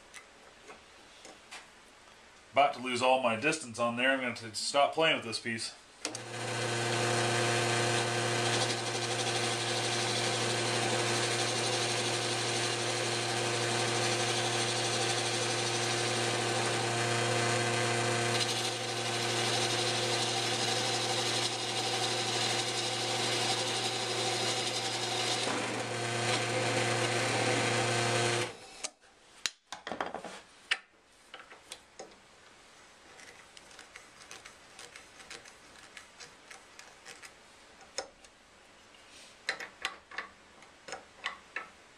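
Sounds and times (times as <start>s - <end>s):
lathe motor humming: 6.1s - 28.6s
turning tool scraping wood: 6.1s - 28.8s, 33.0s - 37.4s.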